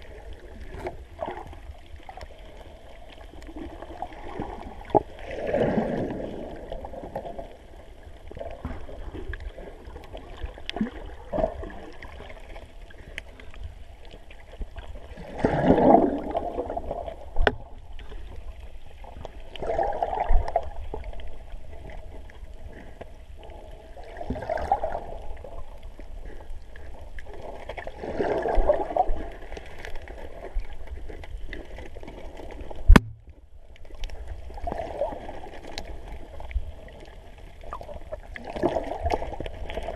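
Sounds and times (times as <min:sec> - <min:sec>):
underwater water hiss and gurgling: 0:00.0 - 0:39.9
sharp knock: 0:32.9 - 0:33.2.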